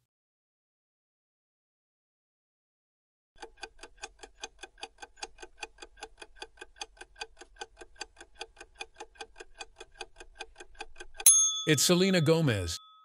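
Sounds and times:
fast clock ticking: 3.4s - 12.6s.

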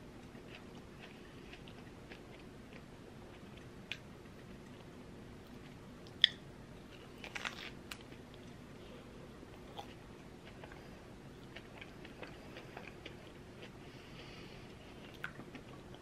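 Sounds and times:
person chewing pastry: 0.3s - 4.9s, 5.5s - 8.6s, 9.6s - 16.0s.

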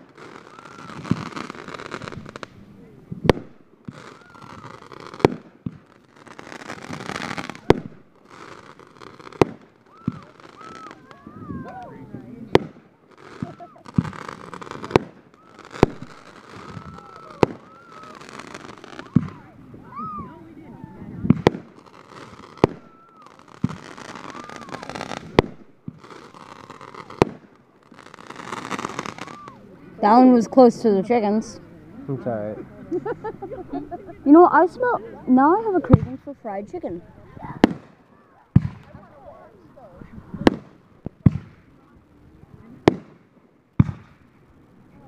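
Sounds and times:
firework hissing rush: 0.0s - 29.7s, 36.9s - 42.0s
fireworks bangs: 0.0s - 31.6s, 34.2s - 45.0s
soft firework thumps: 21.2s - 21.8s, 35.8s - 36.2s, 37.6s - 39.1s.

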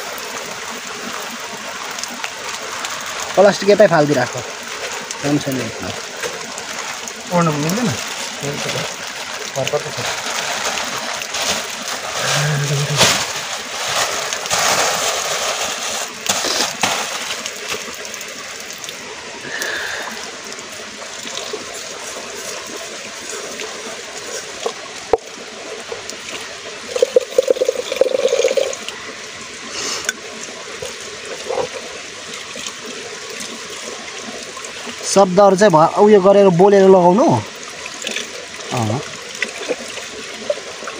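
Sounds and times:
stream water running over rock: 0.0s - 40.9s
water swishing in metal pot: 26.2s - 28.9s.

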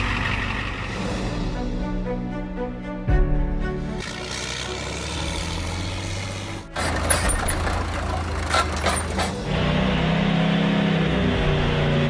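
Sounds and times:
noisy engine with knocks: 0.0s - 1.3s, 4.0s - 12.0s
diesel engine droning: 0.0s - 2.2s, 3.7s - 12.0s.

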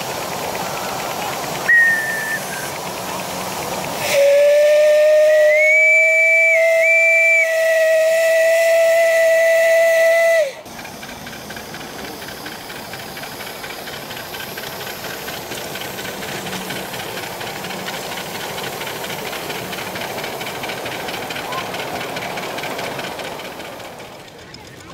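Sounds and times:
steam locomotive hiss: 0.0s - 24.9s
steam whistle blast: 1.6s - 2.8s, 4.0s - 10.6s.

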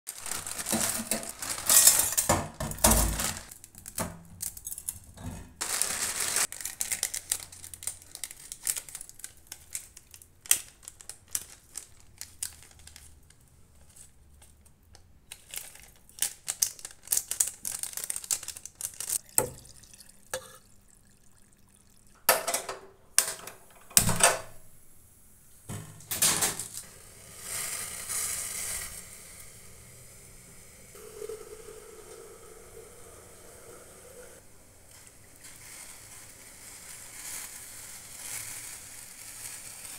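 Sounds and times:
sachet rustling: 0.1s - 2.2s, 5.6s - 14.1s, 15.3s - 19.2s, 34.9s - 39.9s.

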